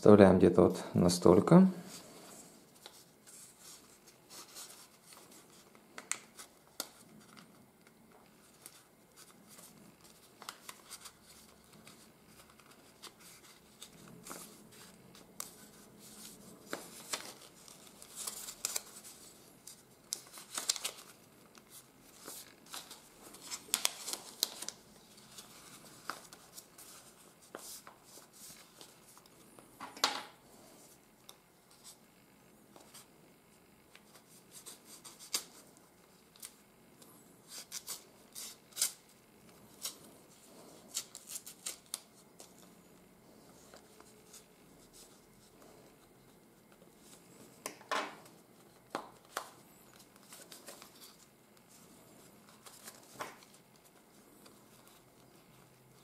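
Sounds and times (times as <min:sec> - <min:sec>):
paper rustling and crinkling: 0:02.7 - 0:07.6, 0:08.2 - 0:29.4, 0:33.9 - 0:36.6, 0:37.4 - 0:56.0
sharp paper crackle: 0:08.4 - 0:29.2, 0:40.6 - 0:42.6.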